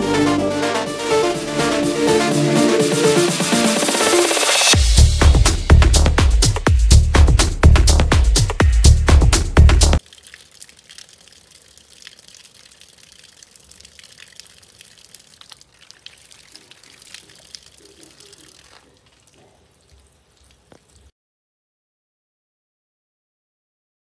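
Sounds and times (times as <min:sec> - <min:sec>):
water splashing over hand: 0:10.0 - 0:21.1.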